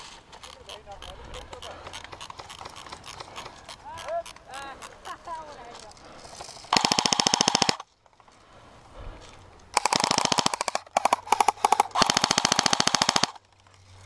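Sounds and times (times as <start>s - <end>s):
airsoft gun automatic bursts: 1.0s - 4.4s, 6.6s - 7.8s, 9.7s - 13.4s.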